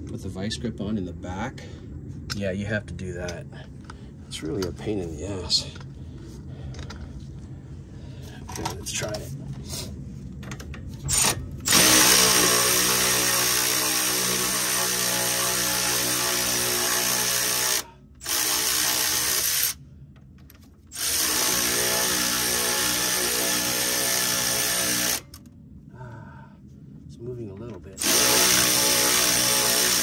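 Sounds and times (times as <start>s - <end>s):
electric ratchet motor whining: 11.1s - 19.8s, 20.9s - 25.4s, 28.0s - 30.0s.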